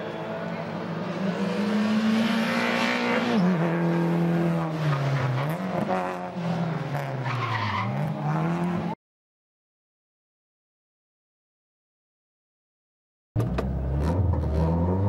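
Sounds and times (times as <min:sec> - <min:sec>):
race car engine revving: 0:00.5 - 0:09.0, 0:13.4 - 0:15.0.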